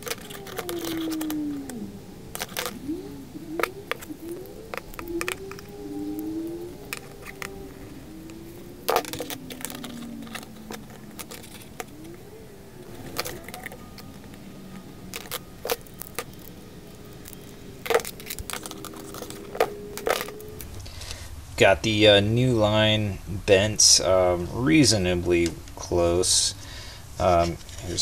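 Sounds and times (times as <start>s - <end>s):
faint wavering tones: 0.0s - 21.7s.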